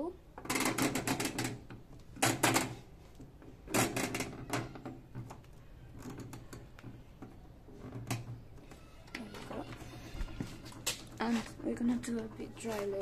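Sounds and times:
washing machine low hum: 8.4s - 13.0s.

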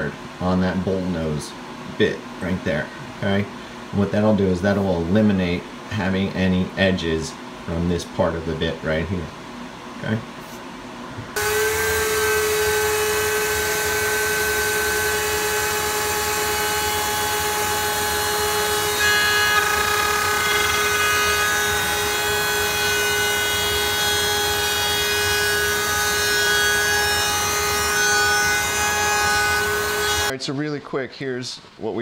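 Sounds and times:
router bit cutting wood: 11.4s - 30.3s
router spinning with high whine: 11.4s - 30.3s.

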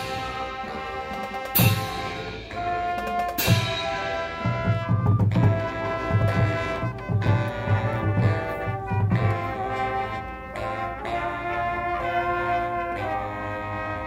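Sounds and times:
heavy low drum strikes: 0.0s - 9.7s
brass chords: 0.0s - 14.0s.

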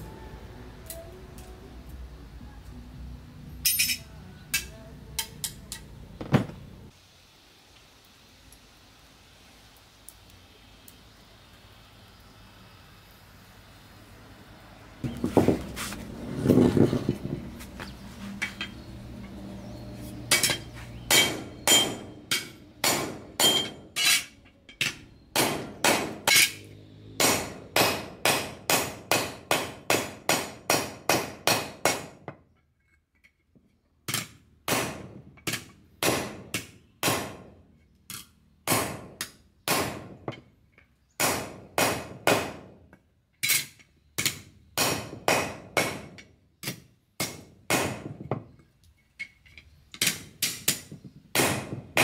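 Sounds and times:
hammer striking steel blade: 20.3s - 32.0s.

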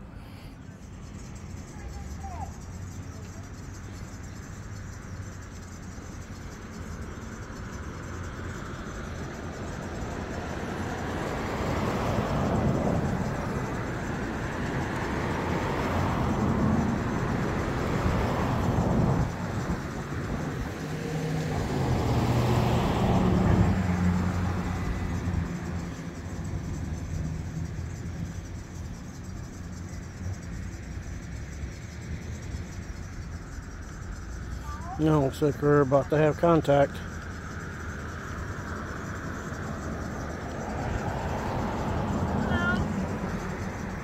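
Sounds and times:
cars passing: 0.0s - 44.0s.

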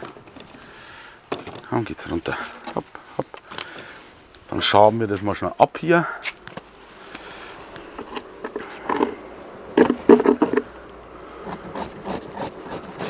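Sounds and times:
bees buzzing: 6.6s - 13.0s
scraping on wooden frames: 9.8s - 10.7s.

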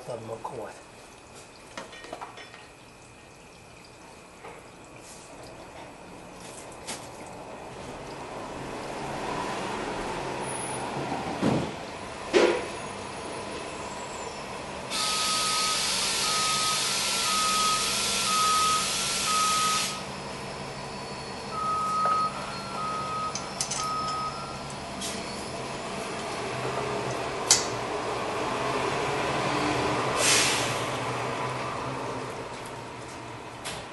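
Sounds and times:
loud steady hiss: 14.9s - 20.0s
backup alarm beeping: 14.9s - 20.1s, 20.8s - 25.4s.

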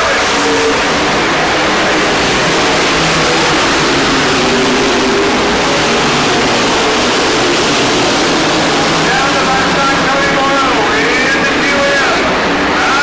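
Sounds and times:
racing truck engines: 0.0s - 13.0s.

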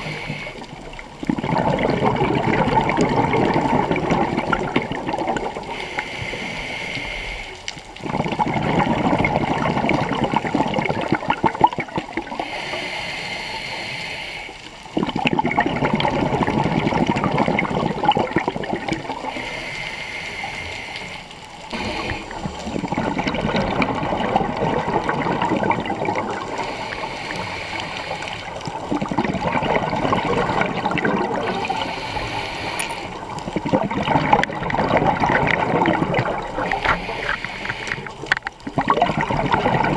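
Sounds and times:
regulator breath hiss: 0.0s - 0.6s, 5.7s - 7.6s, 12.4s - 14.7s, 19.3s - 22.7s, 26.5s - 28.6s, 31.5s - 33.3s, 36.7s - 38.2s
rush of exhaled bubbles: 0.0s - 13.8s, 14.8s - 39.9s.

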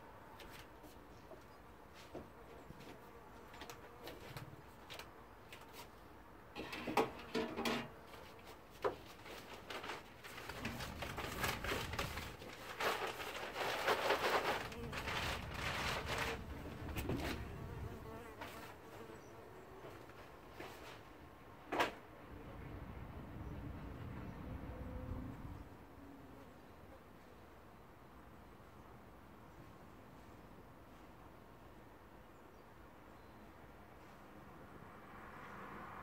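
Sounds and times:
bee buzzing: 14.4s - 20.0s.

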